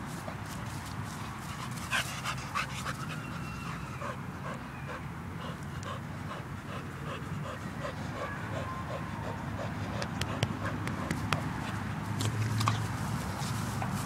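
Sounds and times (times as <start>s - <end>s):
dog panting: 1.1s - 11.9s.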